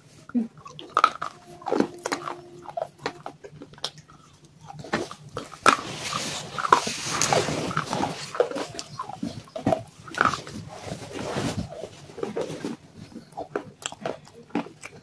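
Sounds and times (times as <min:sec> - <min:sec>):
crunching and chewing: 0:03.2 - 0:15.0.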